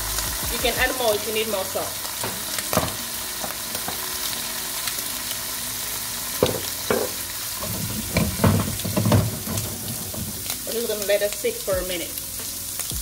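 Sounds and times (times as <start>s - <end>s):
food sizzling in a frying pan: 0.0s - 13.0s
utensil knocking and scraping pan: 6.4s - 10.6s.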